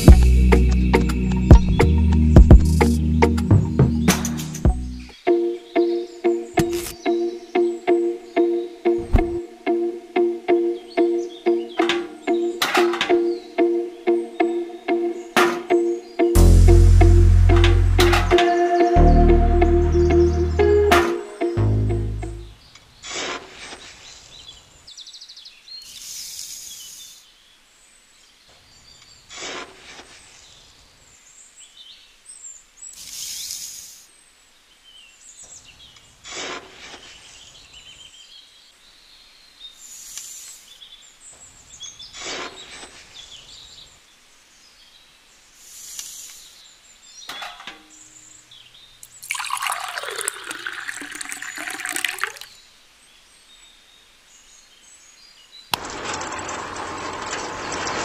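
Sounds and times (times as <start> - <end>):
faint bird chirps: 31.7 - 36.2
dry sand rustling into drum: 42.1 - 43.2, 55.8 - 58.0
water pouring into drum: 49.1 - 52.5.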